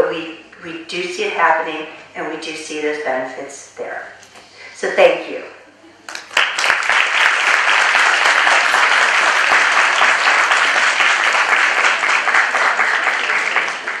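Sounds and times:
audience applauding: 6.1 - 14.0.

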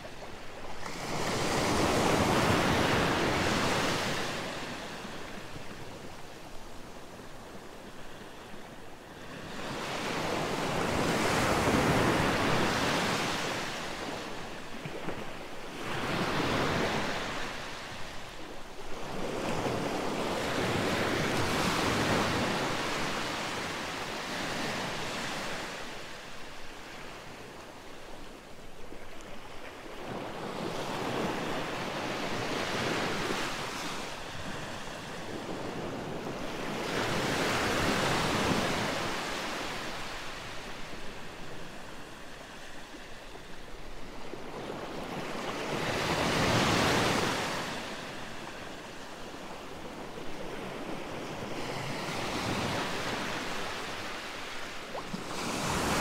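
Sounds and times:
sea waves breaking on beach: 0.0 - 56.0.

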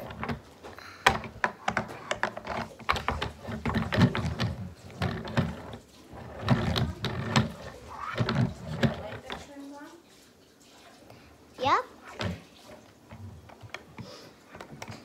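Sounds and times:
plastic toy clicking and clattering: 0.0 - 9.6.

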